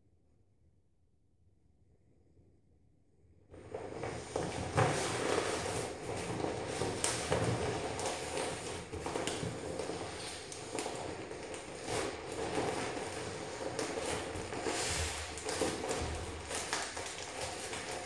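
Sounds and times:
plastic crinkling in hands: 3.6 - 18.0.

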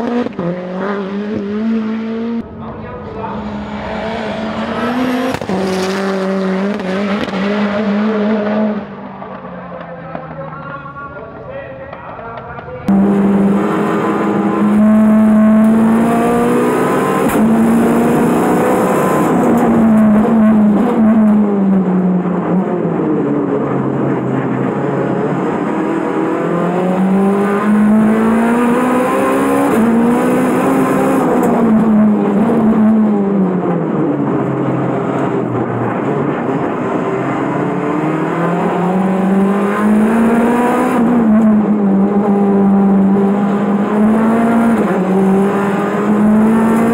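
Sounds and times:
car engine at full throttle: 0.0 - 10.8, 12.3 - 46.9.

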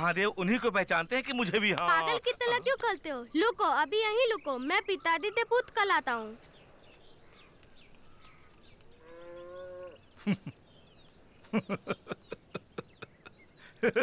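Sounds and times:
cow mooing: 9.0 - 10.0
man laughing: 10.2 - 10.6, 11.4 - 14.0.

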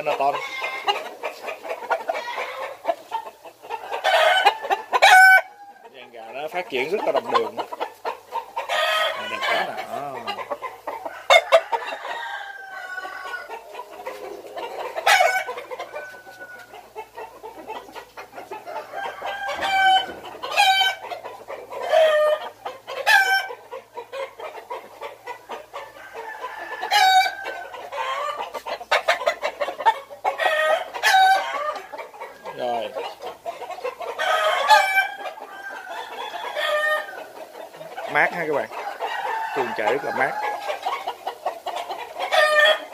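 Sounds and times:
roosters clucking: 0.0 - 42.9
rooster crowing: 3.8 - 5.9, 8.7 - 10.4, 11.0 - 13.7, 15.0 - 16.8, 18.6 - 21.0, 25.8 - 28.4, 30.4 - 32.0, 34.1 - 37.5, 38.1 - 41.1, 42.2 - 42.9.

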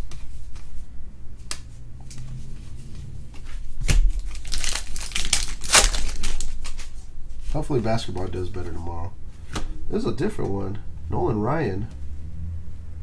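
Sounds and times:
cards flipped through by hand: 3.3 - 7.0.

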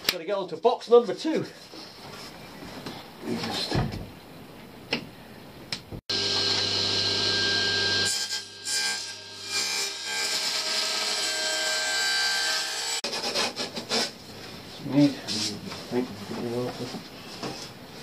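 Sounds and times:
power tool cutting wood: 6.1 - 13.0.

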